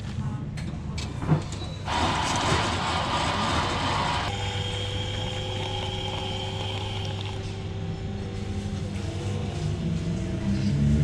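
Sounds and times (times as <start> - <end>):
vending machine mechanical hum: 0.1 - 10.9
machine tones: 1.9 - 7.6.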